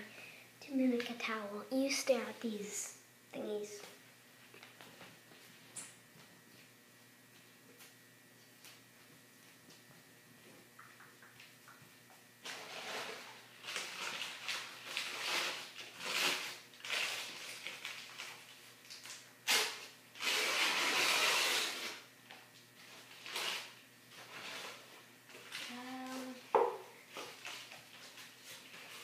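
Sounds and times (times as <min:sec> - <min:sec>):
rustling and handling noises: 0:22.3 - 0:29.0.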